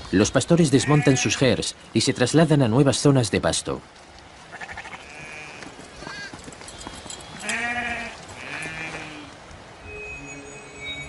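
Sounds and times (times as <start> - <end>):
sheep bleating: 0.8 - 1.4, 4.5 - 6.3, 7.4 - 9.3.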